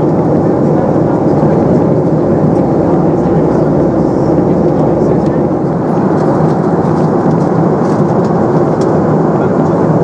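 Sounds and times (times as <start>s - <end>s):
airplane cabin rumble: 0.0s - 10.0s.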